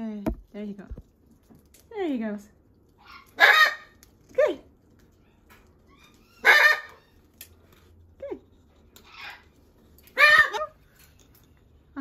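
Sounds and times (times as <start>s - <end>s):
parrot squawks: 3.0s - 4.0s, 6.0s - 7.2s, 10.2s - 10.8s.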